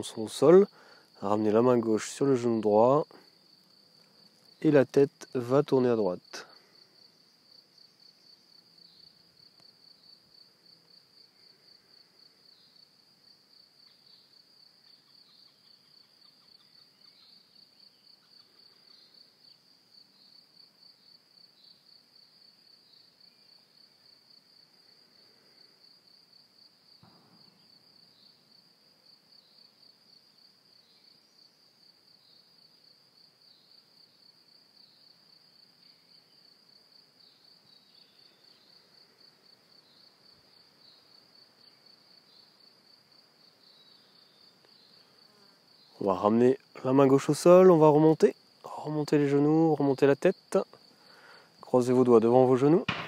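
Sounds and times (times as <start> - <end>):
crickets chirring: 0.0 - 53.0
faint soft knock: 27.0 - 27.6.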